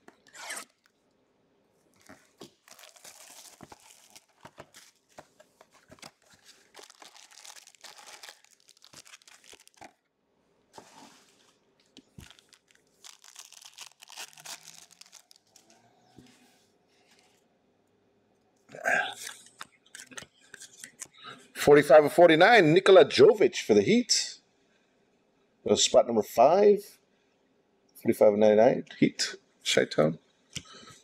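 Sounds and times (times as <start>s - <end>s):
card pack wrappers tearing: 2.0s - 10.0s, 12.1s - 15.7s.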